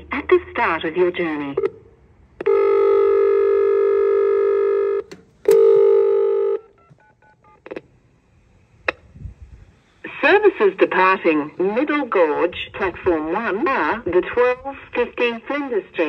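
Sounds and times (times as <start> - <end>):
sharp clicks: 5.0 - 5.7.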